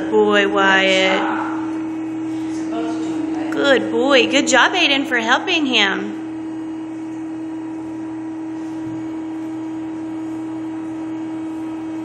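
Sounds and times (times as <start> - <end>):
treadmill machinery humming: 0.0 - 6.4.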